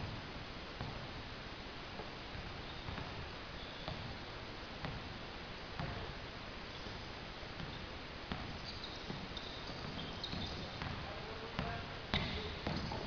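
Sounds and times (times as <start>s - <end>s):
basketball bouncing on court: 0.0s - 1.2s, 2.0s - 13.0s
sneaker squeaks: 2.4s - 4.2s, 6.7s - 13.0s.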